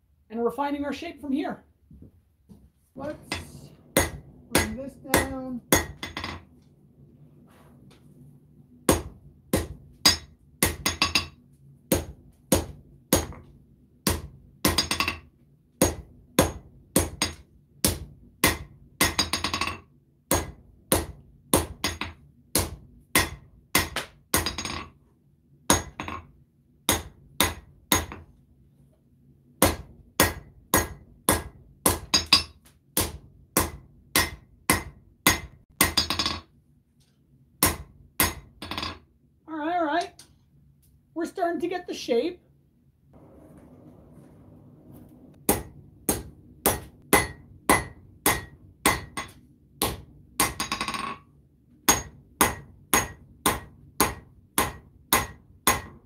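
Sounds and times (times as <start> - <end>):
steady low hum: 1.6 - 14.8, 42.5 - 50.4
hammer striking steel on anvil: 3.3 - 6.4, 8.9 - 13.4, 14.1 - 15.2, 15.8 - 24.9, 25.7 - 26.2, 26.9 - 28.2, 29.6 - 36.4, 37.6 - 39.0, 45.5 - 51.2, 51.9 - 56.0.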